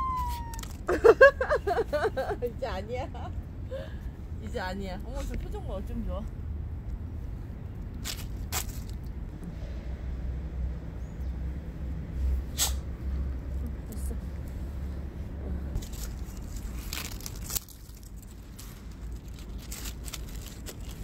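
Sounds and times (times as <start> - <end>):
steady low rumble: 0.0 - 21.0
dog crunching dry leaves: 15.8 - 21.0.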